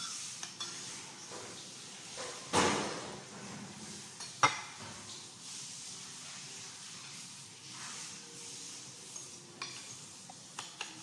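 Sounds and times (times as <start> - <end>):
cutlery scraping a plate: 0.0 - 2.5, 3.2 - 5.2, 6.9 - 11.0
cutlery clinking on a plate: 9.1 - 10.0, 10.6 - 11.0.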